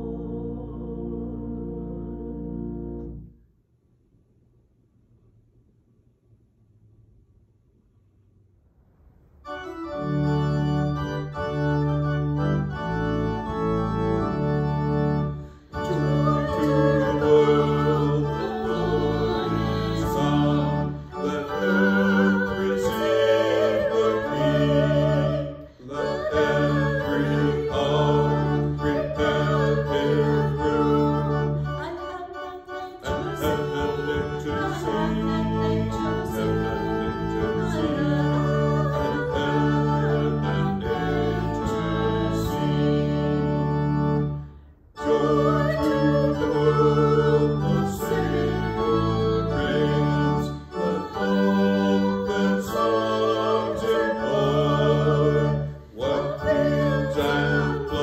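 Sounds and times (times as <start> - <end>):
organ chords: 0.0 - 3.4, 9.4 - 58.0
woman and man singing a hymn: 15.7 - 43.4, 45.0 - 58.0.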